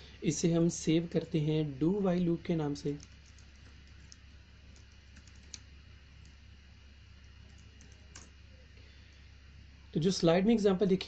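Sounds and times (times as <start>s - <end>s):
low steady hum: 0.0s - 11.0s
computer keyboard keystrokes: 2.9s - 5.6s, 7.5s - 8.3s.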